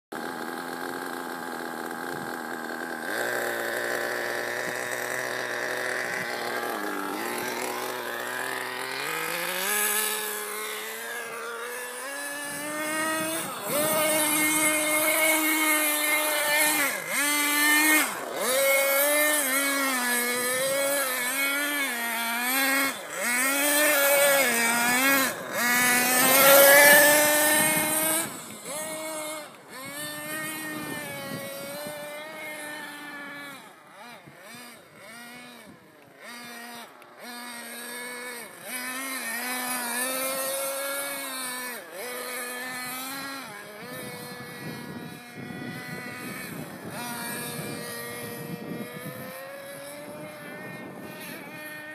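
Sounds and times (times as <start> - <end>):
model car nitro engine revving: 0.2 - 51.9.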